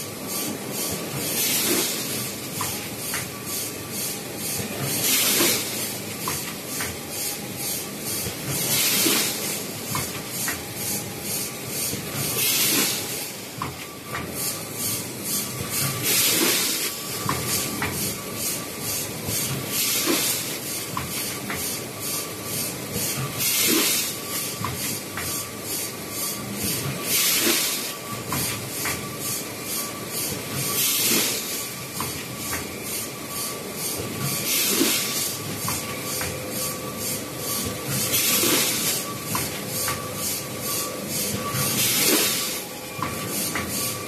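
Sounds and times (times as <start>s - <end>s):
pneumatic air hiss: 0.3s - 44.0s.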